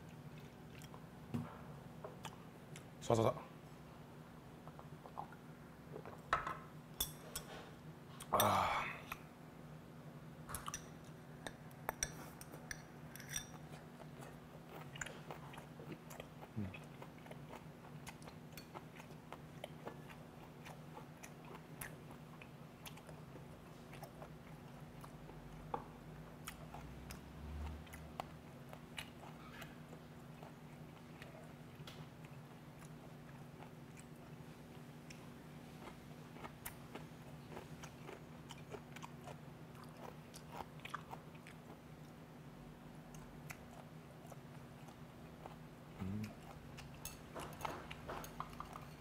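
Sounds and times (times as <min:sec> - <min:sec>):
person chewing food: 0:00.0 - 0:01.1, 0:10.5 - 0:42.2, 0:43.0 - 0:49.0
steady low hum: 0:00.0 - 0:49.0.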